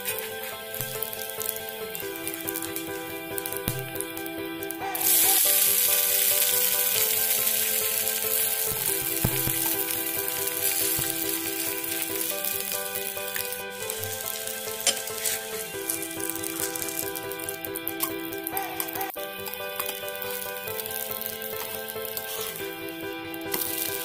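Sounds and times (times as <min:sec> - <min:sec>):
background music: 0:00.0 - 0:24.0
batter sizzling in oil: 0:00.0 - 0:24.0.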